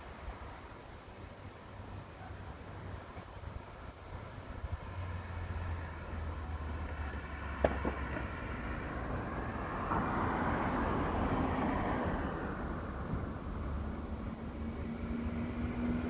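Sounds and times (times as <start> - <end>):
vehicle passing: 3.9 - 16.0.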